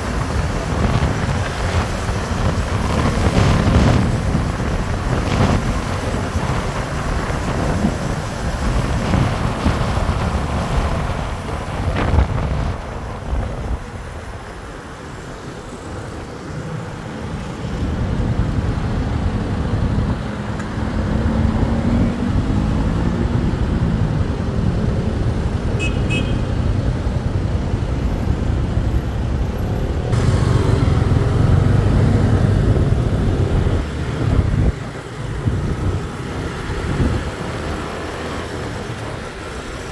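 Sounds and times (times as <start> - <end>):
road and wind noise: 0.0 - 39.9
surrounding traffic engines: 0.0 - 39.9
motorcycle engine: 30.1 - 39.8.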